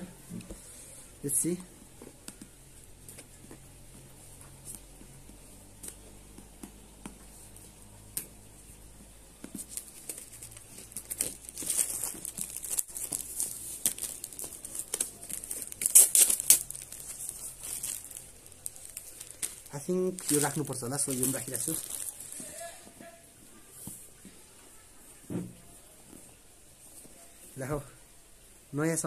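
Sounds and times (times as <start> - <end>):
plastic packaging crinkling: 9.4 - 22.9.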